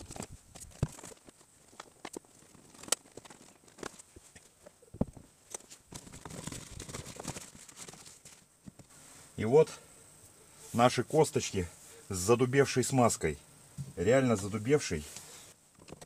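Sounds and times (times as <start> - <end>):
plastic membrane rustling: 0.0 - 9.0.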